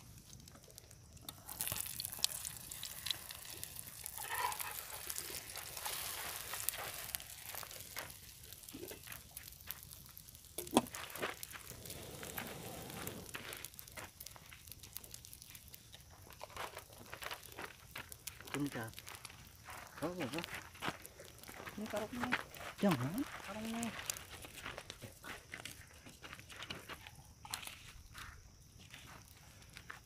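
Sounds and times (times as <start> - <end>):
campfire crackling: 0.0 - 30.0
food sizzling in a skillet: 1.2 - 20.8.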